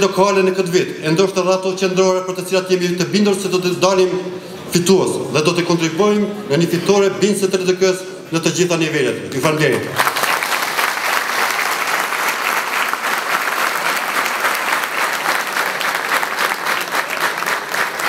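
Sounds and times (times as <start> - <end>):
audience applauding: 10.0 - 18.0.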